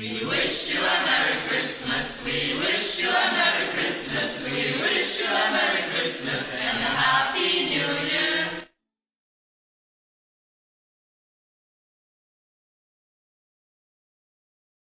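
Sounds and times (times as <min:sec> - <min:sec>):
young voices singing together: 0:00.0 - 0:08.7.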